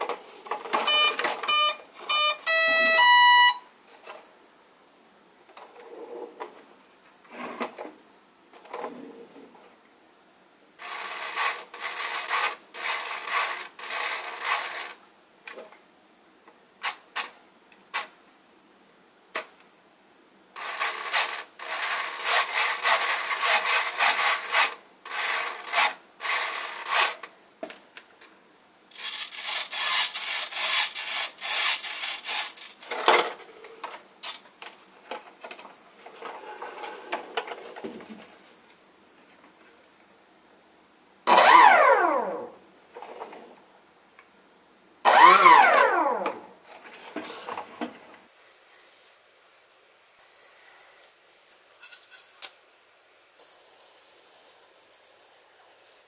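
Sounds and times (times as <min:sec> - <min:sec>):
servos whirring: 0:41.3 - 0:42.5, 0:45.1 - 0:46.4.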